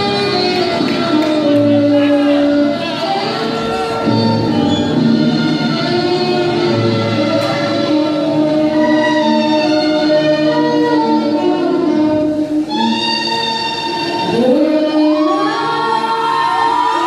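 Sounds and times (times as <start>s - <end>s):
saxophone playing long notes: 0.0s - 17.0s
audience shouts and whoops: 15.2s - 17.0s.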